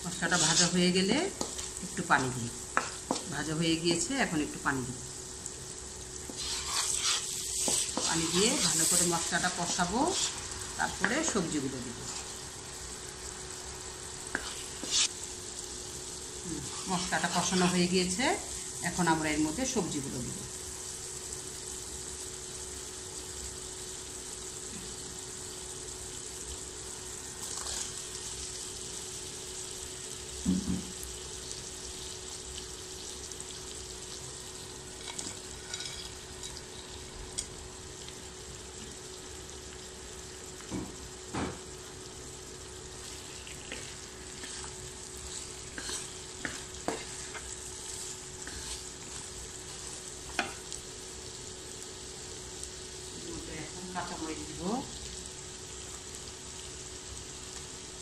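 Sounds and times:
food sizzling in oil: 0.0s - 58.0s
wooden spatula scraping pan: 0.1s - 0.8s, 6.2s - 11.2s, 14.4s - 15.1s, 16.6s - 17.9s, 43.1s - 47.6s, 48.4s - 48.9s.

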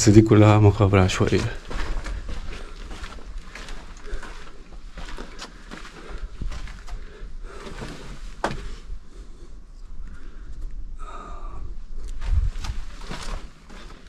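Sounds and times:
steady low rumble: 0.0s - 13.6s
footsteps and scuffing: 1.1s - 8.8s, 12.1s - 14.0s
rustling: 12.1s - 14.0s.

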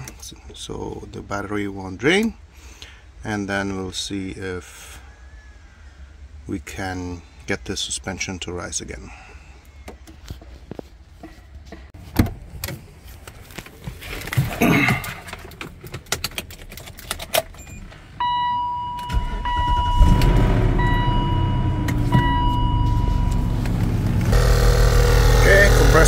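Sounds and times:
car engine cranking and idling: 11.2s - 26.0s
warning tone beeping: 18.2s - 24.2s.

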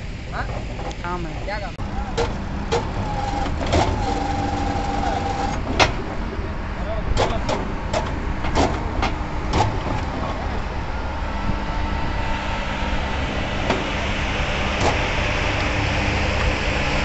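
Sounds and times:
bending machine motor humming: 0.0s - 5.8s
sharp clicks and knocks: 0.4s - 6.1s, 7.1s - 10.6s.

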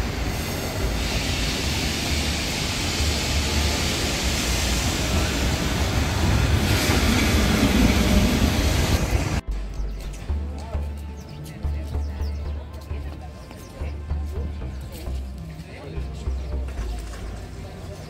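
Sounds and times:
tyres hissing on wet road: 0.0s - 9.4s
electric tram on rails: 0.0s - 10.4s, 12.0s - 18.0s.

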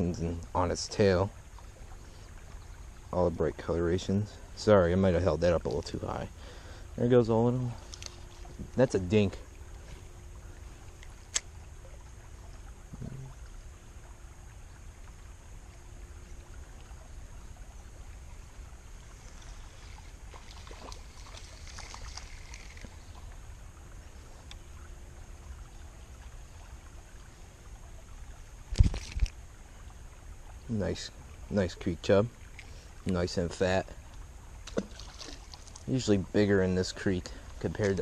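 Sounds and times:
flowing creek water: 0.0s - 38.0s
fish splashing at surface: 19.1s - 23.4s.

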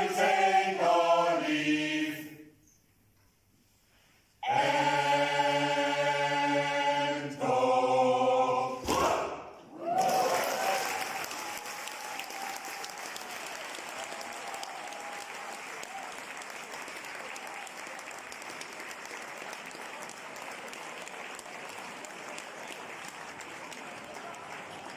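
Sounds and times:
audience applause: 9.8s - 24.9s.

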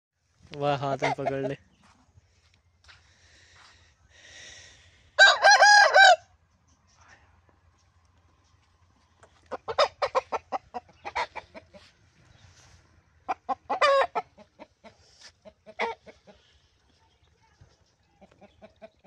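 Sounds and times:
rooster clucking: 0.8s - 1.6s, 9.4s - 12.2s, 13.2s - 16.6s, 18.1s - 19.0s.

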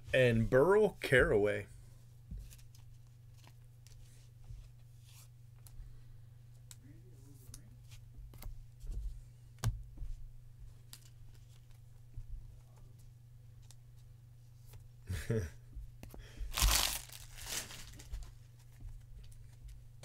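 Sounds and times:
trading cards being handled: 16.6s - 19.7s.

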